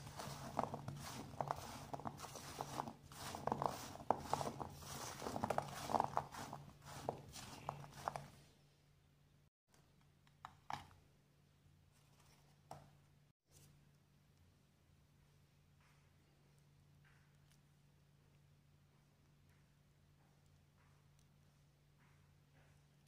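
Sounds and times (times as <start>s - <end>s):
cubes rustling on steel plate: 0.0s - 8.4s.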